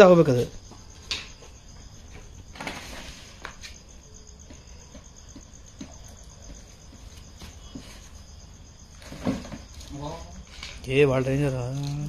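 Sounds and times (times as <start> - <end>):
cricket trilling: 0.0 - 12.0.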